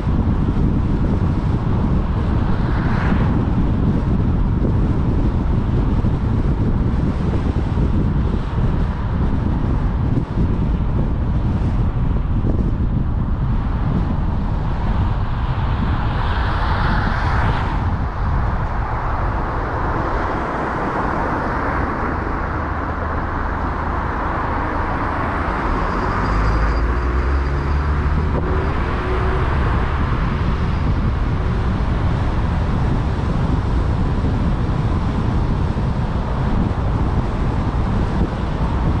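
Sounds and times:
car engine rumble: 0.0s - 39.0s
road and tyre noise: 0.0s - 39.0s.

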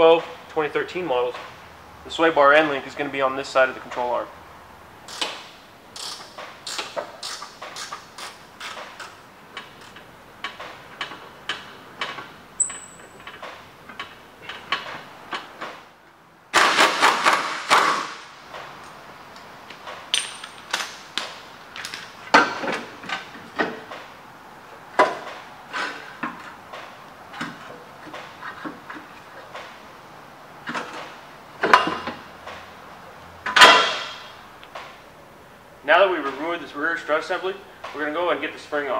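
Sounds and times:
hand ratchet clicking: 5.1s - 5.4s, 6.0s - 14.9s
pneumatic wrench running: 6.0s - 9.2s.

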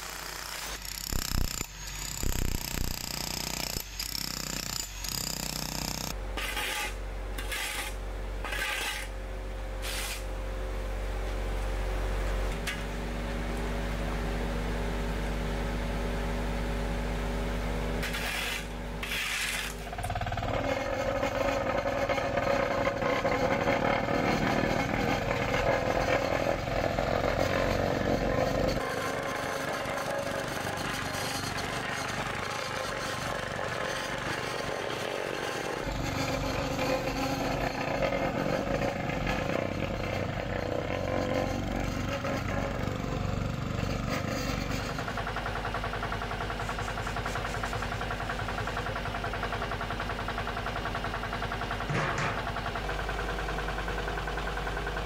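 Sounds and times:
shovels scraping asphalt: 6.4s - 9.2s, 9.8s - 10.2s, 18.0s - 19.9s
loud machine sound: 18.0s - 55.0s
steady engine hum: 19.8s - 55.0s.

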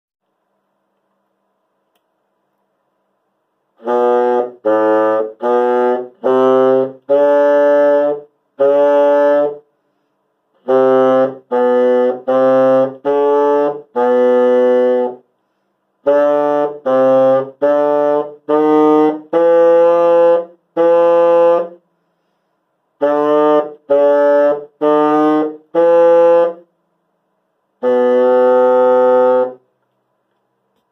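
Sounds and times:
bassoon held notes: 3.8s - 9.6s, 27.8s - 29.6s.

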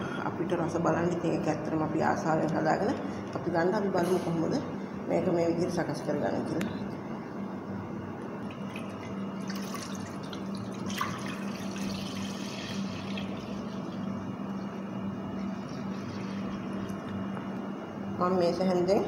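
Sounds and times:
milk pouring into a pot: 8.5s - 17.0s.

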